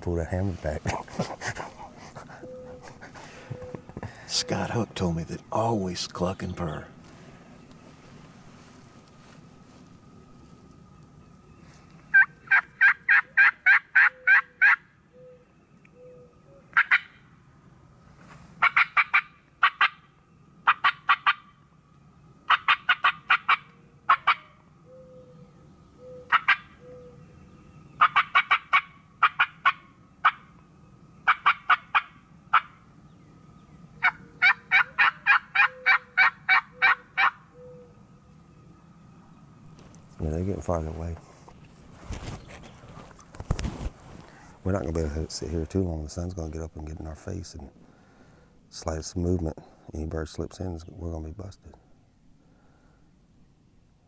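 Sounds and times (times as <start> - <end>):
wild turkey yelping: 1.2 - 4.7, 12.1 - 17.3, 18.6 - 21.6, 22.4 - 25.4, 26.0 - 30.6, 31.2 - 32.8, 33.9 - 38.0.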